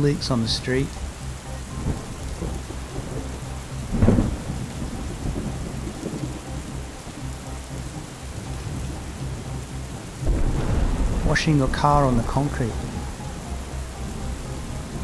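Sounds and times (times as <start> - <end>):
steady rain: 0.0 - 15.0
rumbling thunder: 1.7 - 6.5, 10.2 - 15.0.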